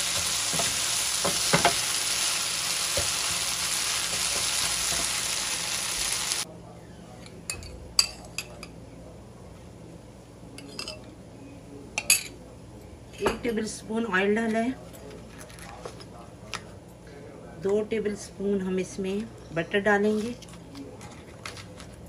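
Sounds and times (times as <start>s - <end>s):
chicken sizzling in a frying pan: 0.0s - 6.5s.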